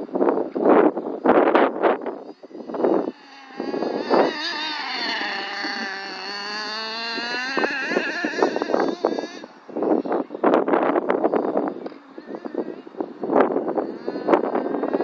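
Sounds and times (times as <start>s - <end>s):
rc truck engine at high revs: 2.5s - 9.5s.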